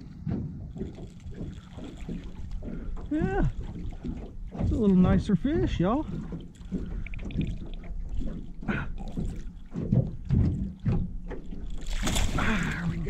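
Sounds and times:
fish splashing at water surface: 6.0 - 13.0.

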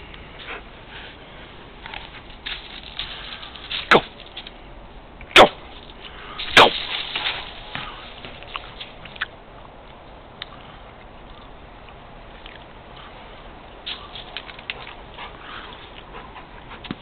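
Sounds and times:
faint outdoor hiss: 0.0 - 17.0
dog paws crunching on gravel: 5.7 - 9.2.

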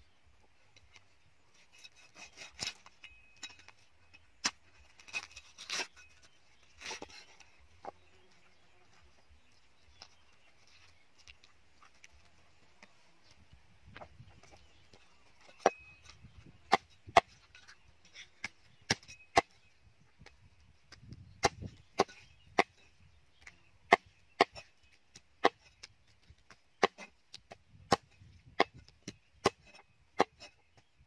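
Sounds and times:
cleaver chopping on wooden block: 21.4 - 22.8.

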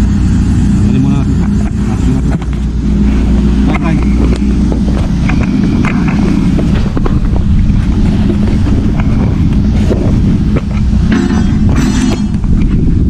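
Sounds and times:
ship machinery rumble: 0.0 - 13.0
wind buffeting microphone: 0.0 - 13.0.

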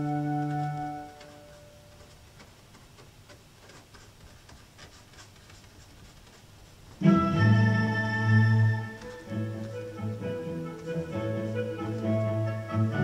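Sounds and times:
organ chord: 7.0 - 13.0.

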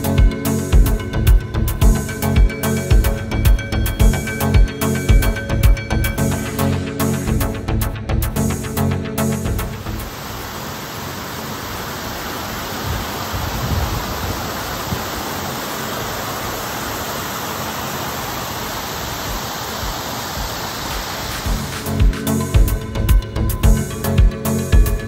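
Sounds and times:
falling water rushing: 9.8 - 23.1.

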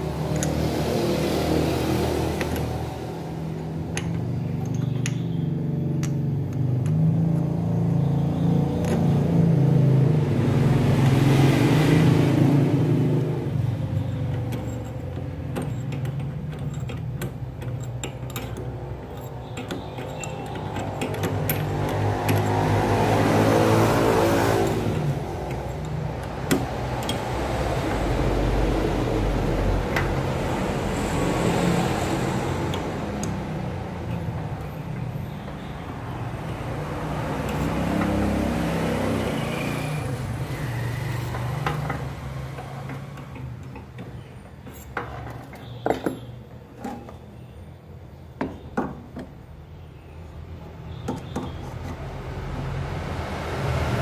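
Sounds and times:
loud mechanical noise: 0.0 - 46.2
sharp metal clicks and taps: 0.3 - 0.6, 3.9 - 5.4, 6.0 - 7.0, 14.2 - 22.9, 24.6 - 28.3, 32.6 - 35.8.

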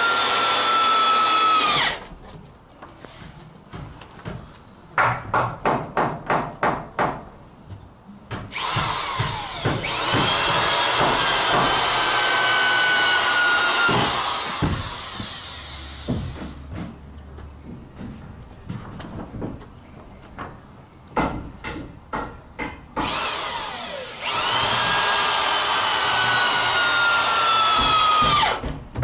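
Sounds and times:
drill motor high whine: 0.0 - 2.0, 8.6 - 16.1, 23.0 - 28.6
drill trigger pulses: 0.0 - 2.0, 8.6 - 16.1, 23.0 - 28.6.

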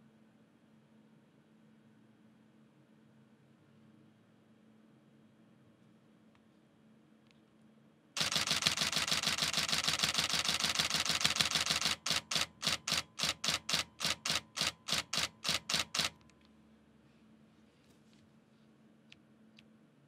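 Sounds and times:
camera shutter clacking rapidly: 8.2 - 16.2.

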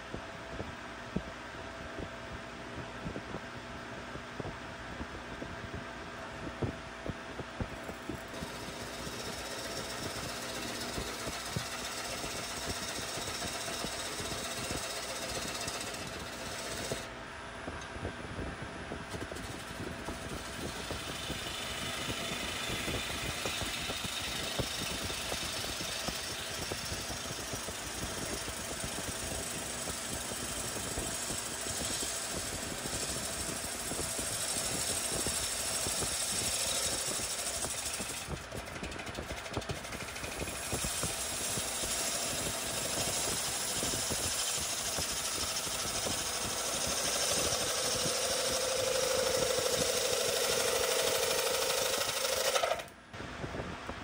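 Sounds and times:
wood lathe rattling: 7.8 - 17.1, 19.1 - 53.0
gouge cutting hiss: 8.2 - 17.1, 19.4 - 52.9.

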